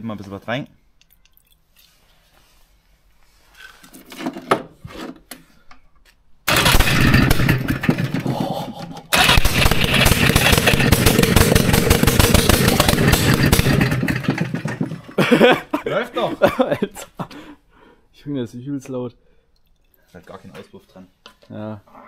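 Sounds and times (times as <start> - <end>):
two-stroke engine running rough: 6.5 - 15.2
engine clattering: 6.5 - 15.3.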